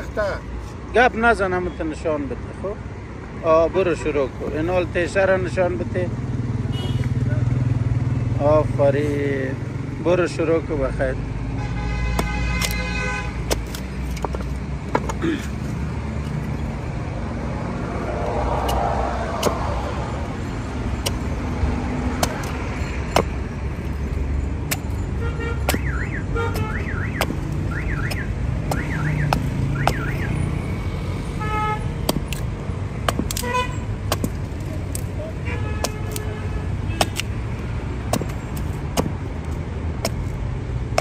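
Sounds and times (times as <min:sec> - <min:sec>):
street traffic: 0:00.0 - 0:41.0
vehicle horns tooting: 0:06.7 - 0:07.2, 0:11.6 - 0:13.5, 0:25.1 - 0:30.4, 0:31.3 - 0:32.0, 0:33.3 - 0:33.9, 0:35.3 - 0:37.3
hatchet chopping wood: 0:12.1 - 0:12.8, 0:13.4 - 0:15.6, 0:18.6 - 0:19.9, 0:21.0 - 0:25.0, 0:25.6 - 0:30.4, 0:32.0 - 0:35.2, 0:35.8 - 0:36.3, 0:36.9 - 0:41.0.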